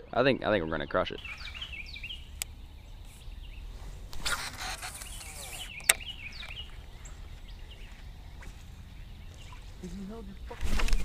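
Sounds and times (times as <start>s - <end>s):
birds chirping: 0.0s - 11.0s
fishing reel spool whirring: 4.2s - 5.8s.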